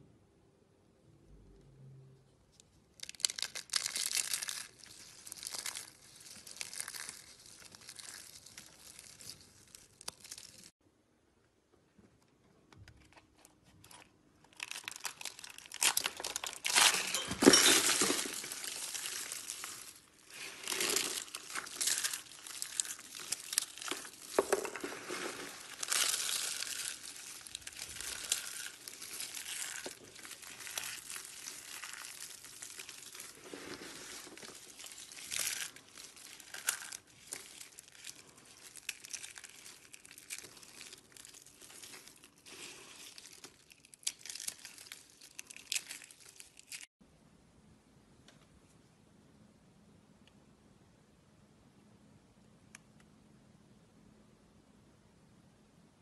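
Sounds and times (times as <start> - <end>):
dry soap crackling and crumbling: 2.5 - 10.8, 13.1 - 47.0
soap flakes scrunching: 2.9 - 10.8, 13.8 - 47.0.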